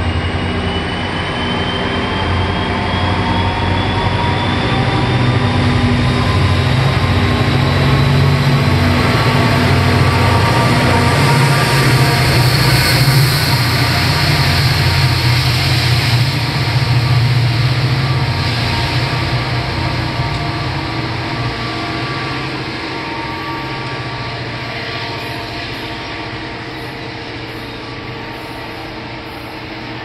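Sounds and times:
locomotive engine droning: 0:00.0 - 0:30.0
train cars rumbling over rails: 0:00.0 - 0:30.0.

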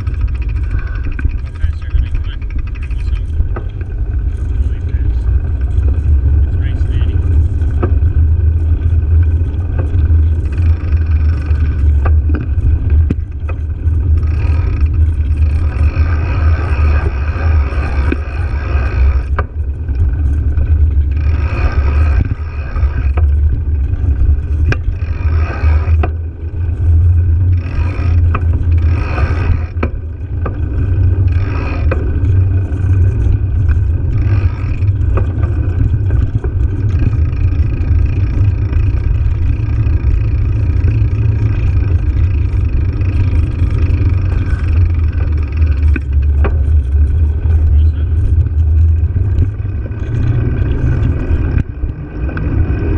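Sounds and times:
bicycle tyre road vibration: 0:00.0 - 0:52.9.

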